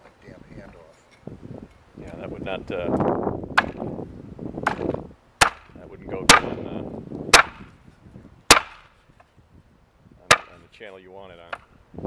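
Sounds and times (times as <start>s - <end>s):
machete chopping onto wooden board: 3.5s - 3.9s, 4.6s - 6.6s, 7.3s - 7.7s, 8.5s - 8.9s, 10.3s - 10.6s.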